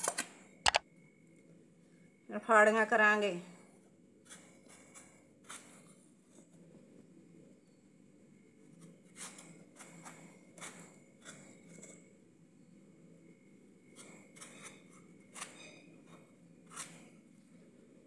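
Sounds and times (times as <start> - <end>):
knife slicing watermelon: 13.9 - 17.2.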